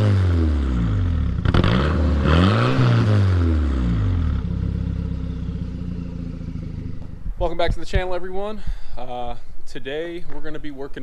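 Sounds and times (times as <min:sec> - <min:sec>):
car engine revving and idling: 0:00.0 - 0:07.4.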